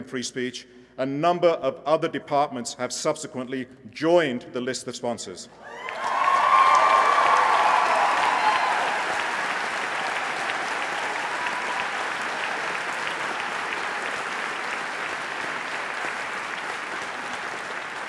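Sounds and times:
audience applauding: 5.7 - 18.0.

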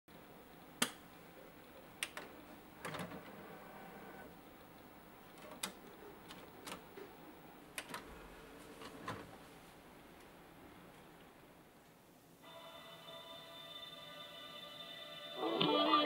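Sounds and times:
disc tray motor whir: 3.0 - 4.4.

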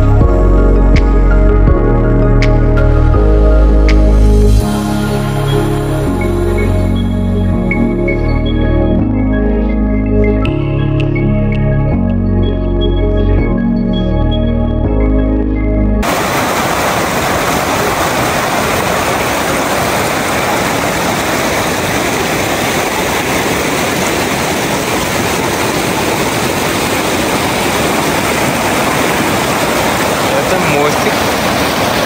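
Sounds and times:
stream rushing over stones: 16.0 - 32.0.

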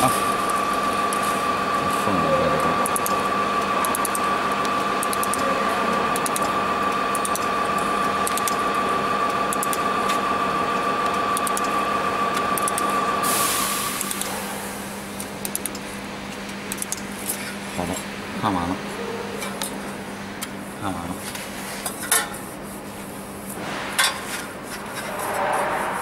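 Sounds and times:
welding machine whine and hum: 0.0 - 26.0
hiss: 13.2 - 14.9.

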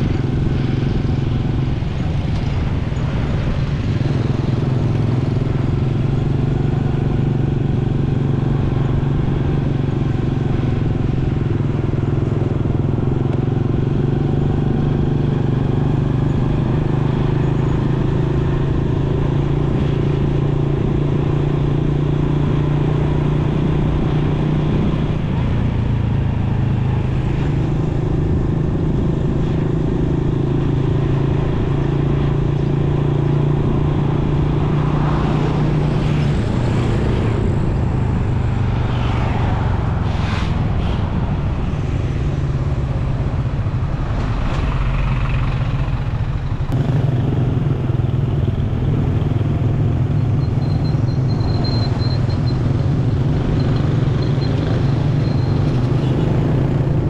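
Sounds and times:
road and wind noise: 0.0 - 57.0
motorcycle engine running: 42.2 - 57.0.

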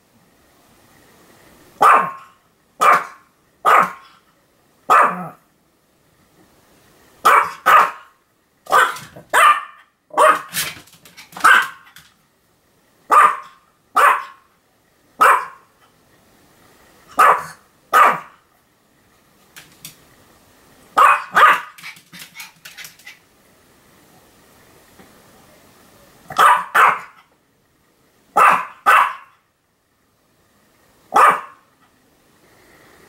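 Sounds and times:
small dog barking: 1.8 - 4.2, 4.9 - 5.4, 7.2 - 12.0, 13.1 - 14.5, 15.2 - 15.7, 17.1 - 18.4, 21.0 - 21.9, 26.3 - 27.3, 28.4 - 29.4, 31.1 - 31.7.

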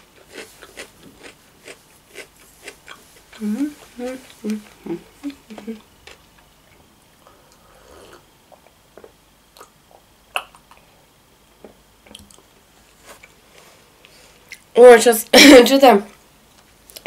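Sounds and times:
soft chewing and swallowing: 0.2 - 14.7
small wet mouth clicks: 9.6 - 10.9.

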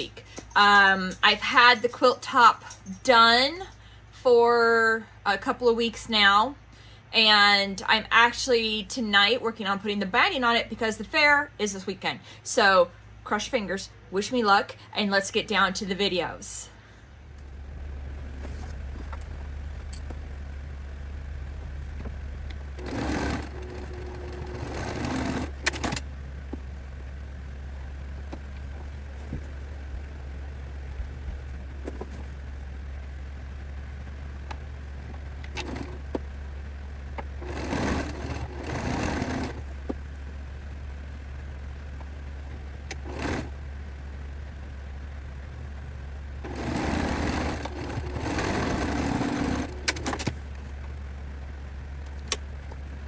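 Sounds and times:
steady low hum: 0.0 - 53.0
sewing machine stitching: 22.7 - 26.0, 35.5 - 36.1, 37.4 - 39.7, 42.9 - 43.6, 46.4 - 50.3.

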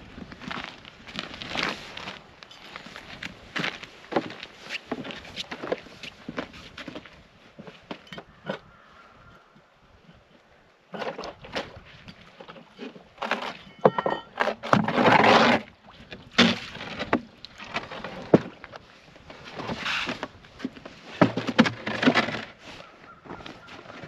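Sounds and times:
wood creaking: 10.9 - 24.0
wooden knocks and scrapes: 12.4 - 15.7, 16.3 - 24.0.

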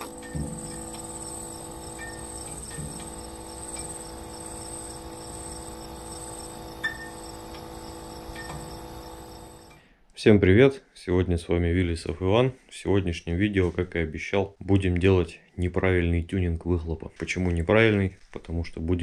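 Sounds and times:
crickets chirping: 0.0 - 9.8
low steady hum: 0.0 - 9.8.

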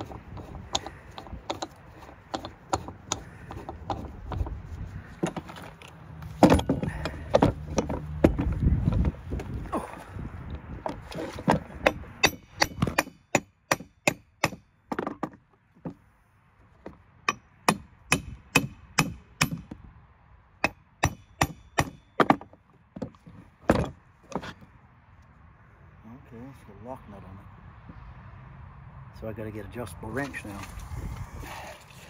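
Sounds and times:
sharp knocks from hand tools: 11.4 - 16.0, 16.8 - 19.8, 20.6 - 24.5.

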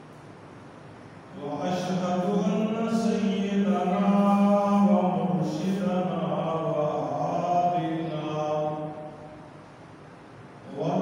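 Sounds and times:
man chanting melodic recitation: 1.4 - 9.4, 10.7 - 11.0.

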